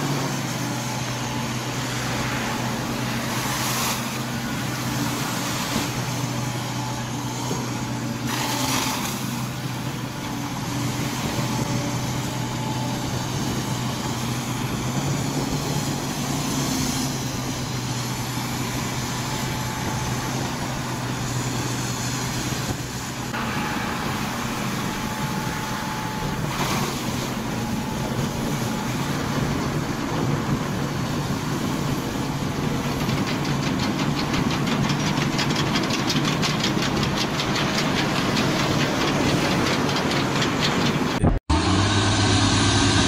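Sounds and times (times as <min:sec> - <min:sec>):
excavator diesel engine running: 0:00.0 - 0:43.0
fast even clatter: 0:32.9 - 0:41.4.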